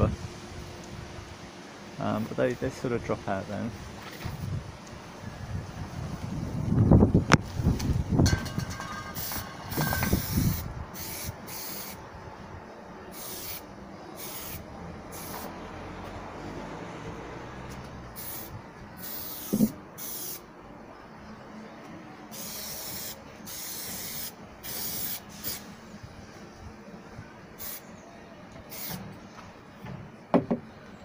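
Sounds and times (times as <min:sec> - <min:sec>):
aerosol can spraying: 0:09.1 - 0:12.0, 0:13.2 - 0:13.6, 0:14.2 - 0:14.6, 0:18.2 - 0:20.4, 0:22.3 - 0:25.7, 0:28.7 - 0:29.0
sharp knocks: 0:29.8 - 0:30.6.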